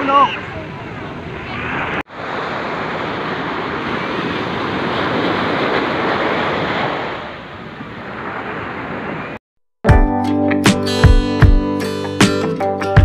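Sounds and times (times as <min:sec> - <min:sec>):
surf breaking on shore: 0:00.0 - 0:09.4.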